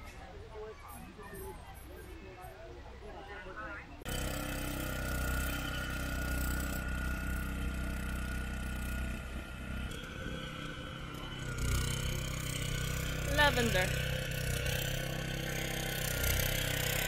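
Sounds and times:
power tiller engine running: 4.1 - 17.0.

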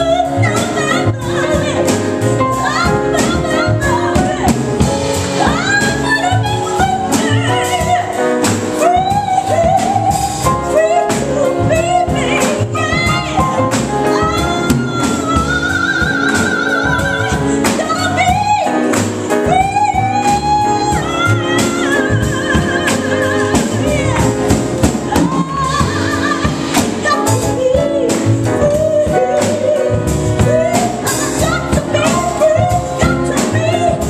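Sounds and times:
jazz piano trio: 0.0 - 34.0
woman singing: 0.0 - 34.0.

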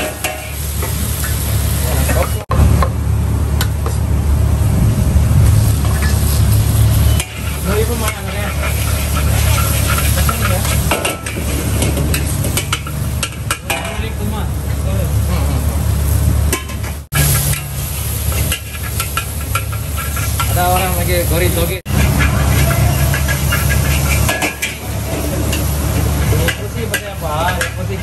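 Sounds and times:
metal spatula scraping a wok: 0.0 - 1.4, 5.7 - 14.0, 17.0 - 21.3, 21.9 - 28.0
noodles sizzling in a wok: 0.0 - 2.4, 5.5 - 14.2, 15.8 - 28.0
steady low rumble: 1.0 - 18.5.

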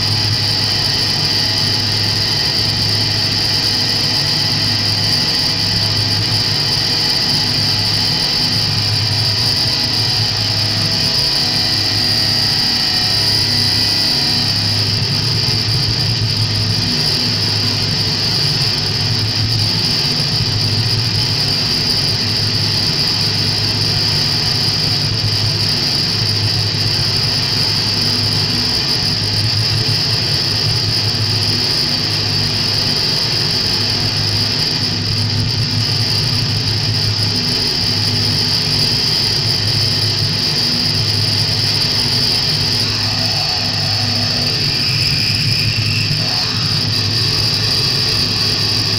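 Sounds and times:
low throbbing drone: 0.0 - 48.9
high-pitched electronic squeal: 41.7 - 48.9.

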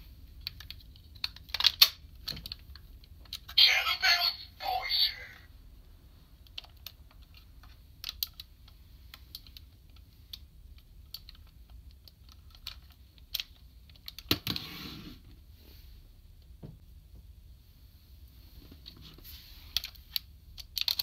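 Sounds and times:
plastic toy parts clicking: 0.4 - 3.5, 6.4 - 8.5, 11.0 - 14.4, 19.8 - 21.0.

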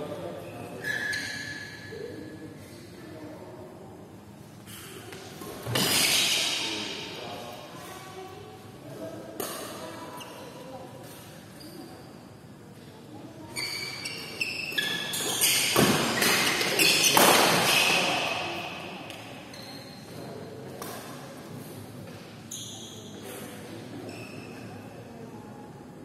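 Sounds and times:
sneakers squeaking on court: 5.4 - 6.6, 13.5 - 18.2, 22.2 - 23.3
rackets hitting shuttlecock: 15.2 - 19.3.

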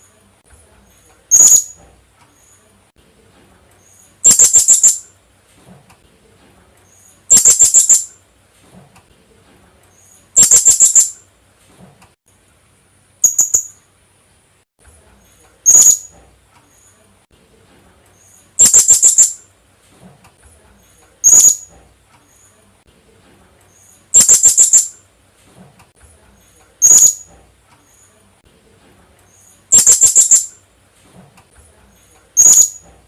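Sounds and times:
parrot calling: 1.3 - 1.8, 4.2 - 5.0, 7.3 - 8.1, 10.3 - 11.2, 13.2 - 13.8, 15.6 - 16.1, 18.6 - 19.4, 21.2 - 21.7, 24.1 - 24.9, 26.8 - 27.3, 29.7 - 30.5, 32.4 - 32.8.

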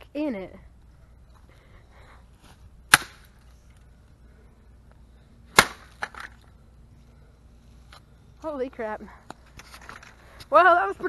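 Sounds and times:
axe smashing into radio: 2.9 - 3.3, 5.6 - 6.3.

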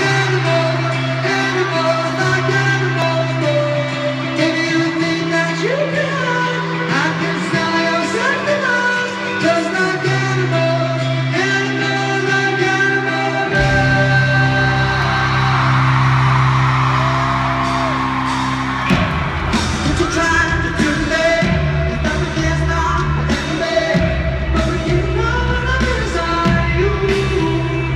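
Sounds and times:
crowd yelling: 0.0 - 10.2, 11.6 - 27.5
person singing: 0.0 - 18.1, 19.8 - 27.9
live pop-rock band: 0.0 - 27.9.

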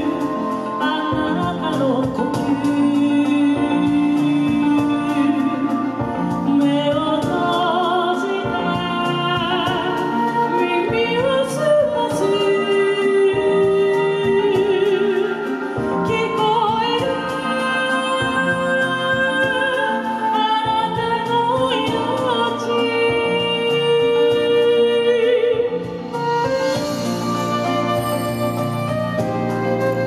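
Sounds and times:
woman singing with vibrato: 0.0 - 29.6
instrumental accompaniment with bass: 0.0 - 30.0.

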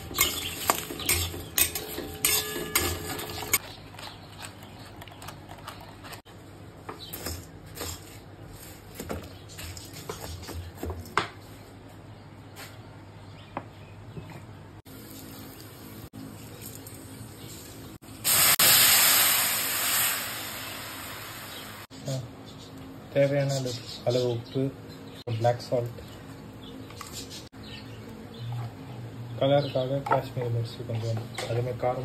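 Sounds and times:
metal spatula scraping steel pan: 0.0 - 3.6.

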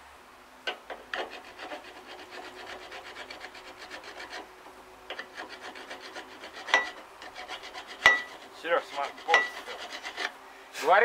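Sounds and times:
hand file rasping on steel: 0.9 - 4.5, 5.1 - 10.4.

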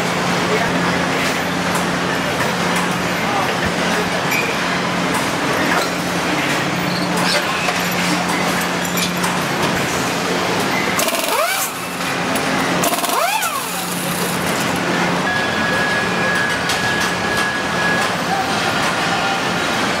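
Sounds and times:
machinery hum: 0.0 - 20.0
tools clattering and rattling: 7.1 - 10.0.

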